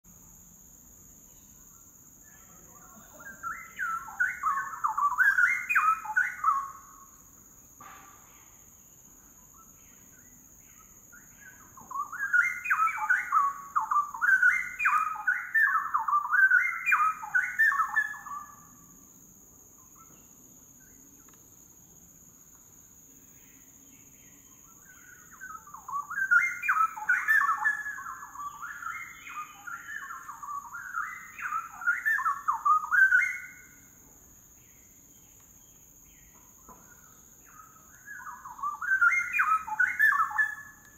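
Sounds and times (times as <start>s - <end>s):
bird singing whistled notes: 1.3s - 7.2s, 9.2s - 19.0s, 23.3s - 40.9s.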